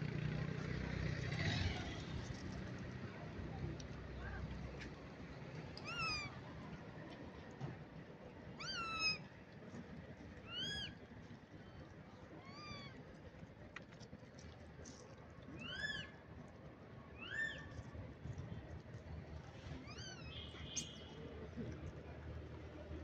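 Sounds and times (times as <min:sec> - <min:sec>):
monkey high-pitched calls: 0:17.2 - 0:17.7.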